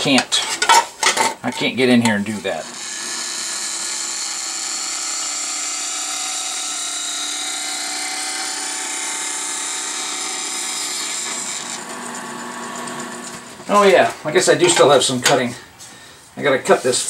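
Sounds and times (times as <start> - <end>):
band saw cutting metal: 2.3 - 15.3.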